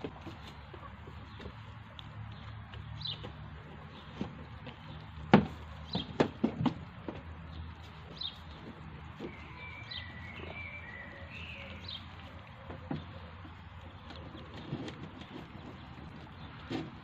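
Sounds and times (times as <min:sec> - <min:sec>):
kittens eating dry food: 0:00.0 - 0:17.0
sharp clicks and knocks: 0:01.3 - 0:07.5
longer bird call: 0:09.2 - 0:12.1.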